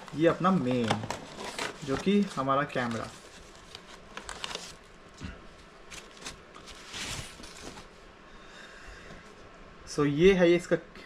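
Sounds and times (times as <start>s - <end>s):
protective wrap rustling: 0.0s - 8.0s.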